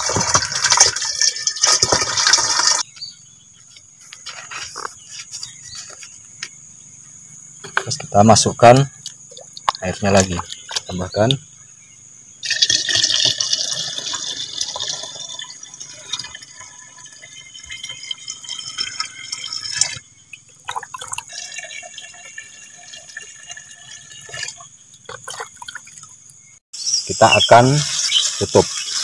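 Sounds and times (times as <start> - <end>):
water pouring into plastic jug: 0.0 - 2.8, 12.4 - 26.1.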